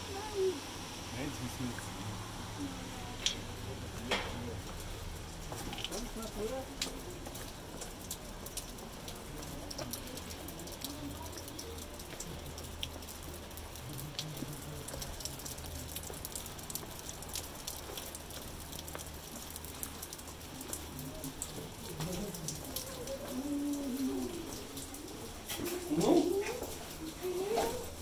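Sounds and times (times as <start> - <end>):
drip-like taps: 3.2 - 23.4.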